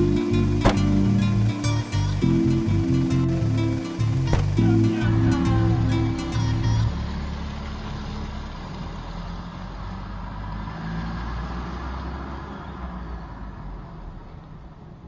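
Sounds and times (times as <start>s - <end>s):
car engine running: 0.0s - 9.6s
road noise: 0.0s - 15.0s.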